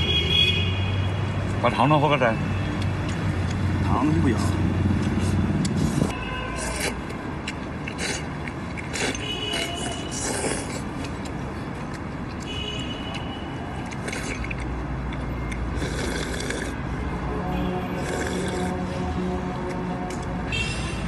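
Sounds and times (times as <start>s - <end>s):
city traffic hum: 0.0s - 21.0s
person slurping noodles: 5.2s - 7.1s, 7.9s - 11.0s, 15.7s - 16.8s, 18.0s - 18.8s.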